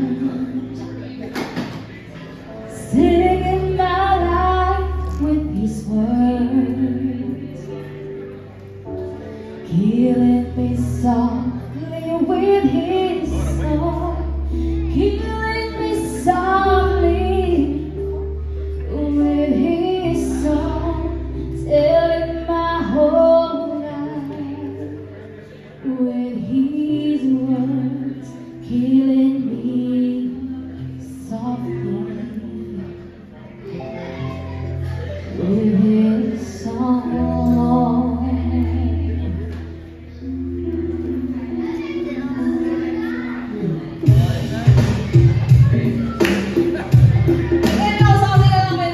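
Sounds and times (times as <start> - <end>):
woman singing through microphone: 0.0 - 1.9, 2.5 - 40.6, 47.0 - 48.9
instrumental accompaniment with bass: 30.3 - 48.9.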